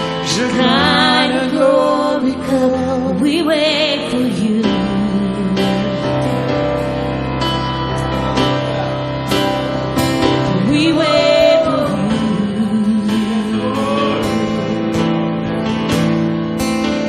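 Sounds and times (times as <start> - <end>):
guitar strumming: 0.0 - 17.0
person singing long notes: 10.5 - 14.9.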